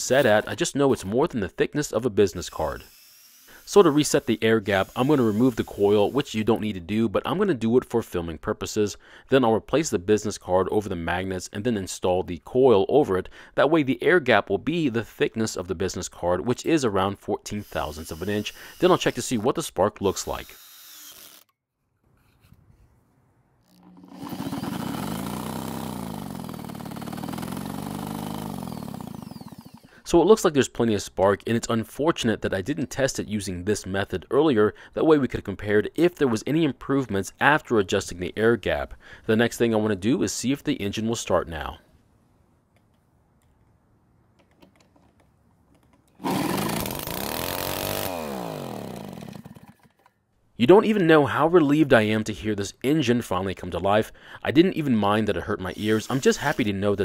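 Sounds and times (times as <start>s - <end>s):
engine being turned over: 23.8s - 29.9s, 46.2s - 50.1s.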